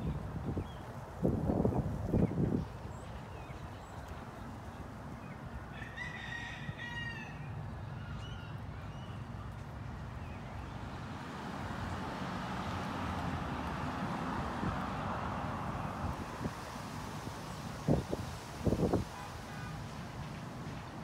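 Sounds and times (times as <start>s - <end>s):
rooster crowing: 5.7s - 7.5s.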